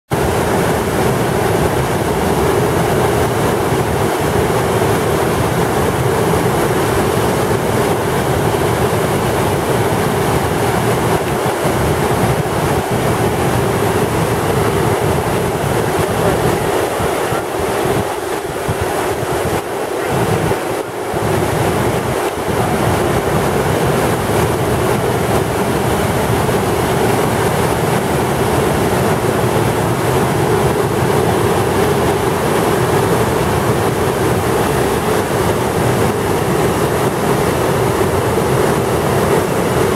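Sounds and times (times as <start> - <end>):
whitewater rapids roaring: 0.1 - 39.9.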